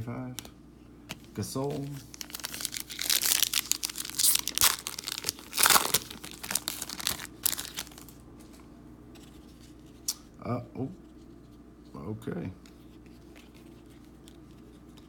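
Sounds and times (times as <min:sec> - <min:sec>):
plastic wrapper crinkling and tearing: 0:01.2 - 0:08.2.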